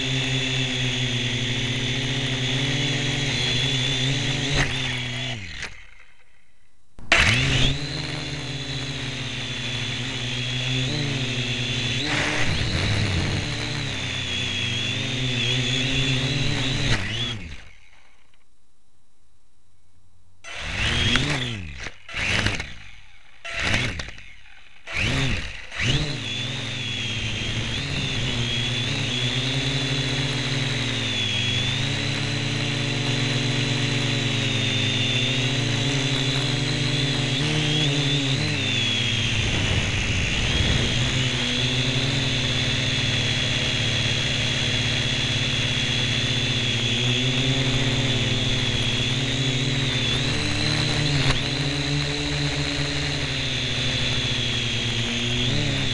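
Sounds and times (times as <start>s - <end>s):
quadcopter motors whining: 0.0s - 18.4s, 20.4s - 55.9s.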